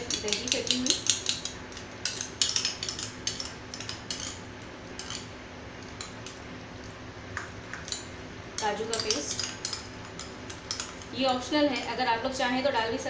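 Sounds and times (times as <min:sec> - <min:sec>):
spoon scraping ceramic bowl: 0:00.0 - 0:05.3
steady low hum: 0:00.0 - 0:13.0.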